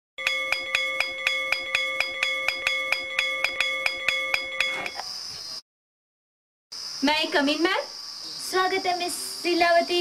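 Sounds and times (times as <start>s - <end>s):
school bell ringing rapidly: 0.2s - 5.0s.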